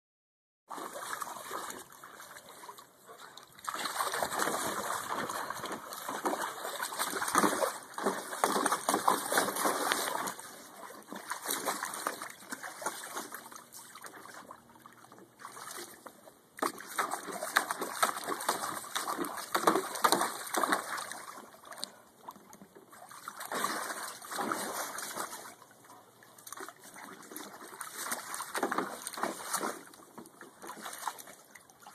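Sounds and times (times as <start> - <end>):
dog stepping in pool: 0.7 - 31.9
water splashing and sloshing: 0.7 - 31.9.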